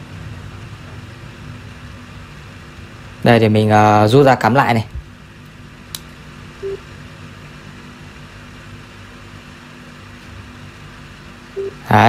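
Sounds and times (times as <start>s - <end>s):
speaker electrical hum and hiss: 0.0s - 12.0s
short low beep: 11.6s - 11.8s.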